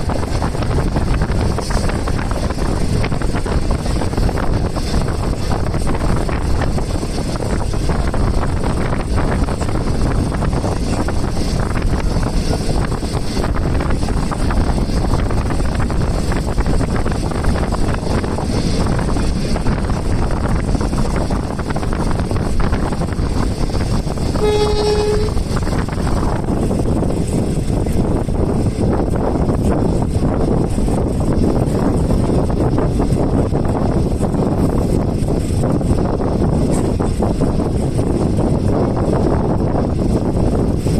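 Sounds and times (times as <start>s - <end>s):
train wheels rumbling on track: 0.0s - 40.9s
wind rushing: 0.0s - 40.9s
train horn blast: 24.3s - 25.6s.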